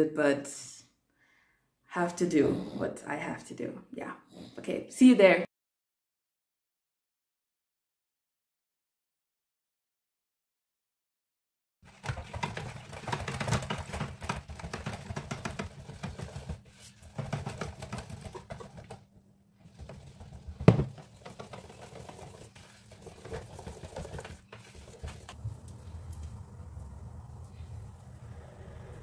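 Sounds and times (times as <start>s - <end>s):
utensils tapping and scraping: 12.0s - 19.0s, 19.6s - 25.4s.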